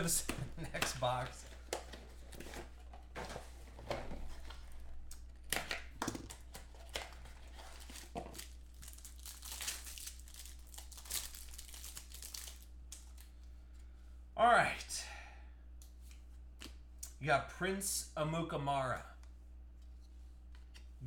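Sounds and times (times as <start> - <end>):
plastic wrappers crinkling and tearing: 4.3 - 13.3.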